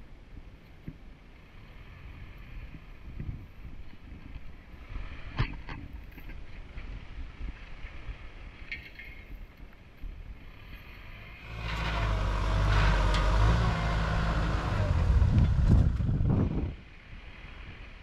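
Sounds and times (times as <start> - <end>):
diesel engine running: 11.0 - 16.6.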